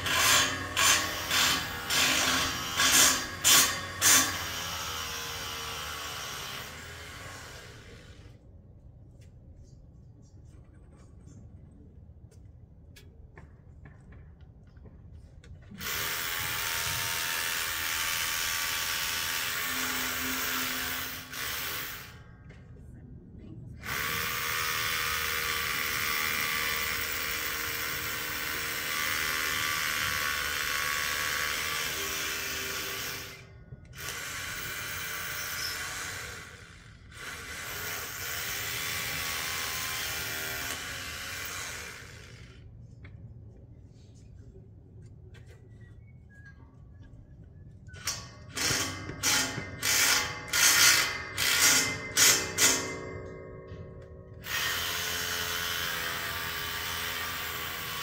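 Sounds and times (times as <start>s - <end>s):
hammer drill boring into concrete: 0.0s - 8.2s, 15.8s - 22.2s, 23.8s - 42.6s, 48.0s - 53.0s, 54.4s - 58.0s.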